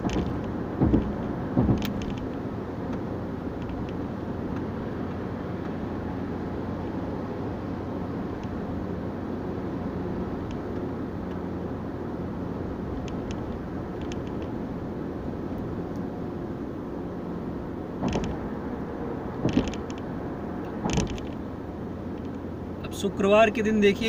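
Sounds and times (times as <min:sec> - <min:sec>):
short thumps: 0:00.0 - 0:03.0, 0:18.0 - 0:18.5, 0:19.4 - 0:20.0, 0:20.7 - 0:21.4
car road and engine noise: 0:00.0 - 0:24.0.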